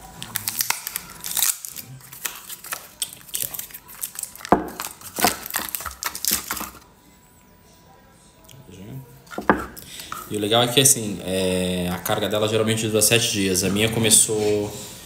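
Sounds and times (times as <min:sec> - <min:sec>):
plastic and cardboard packaging crinkling: 0:00.0 - 0:06.9.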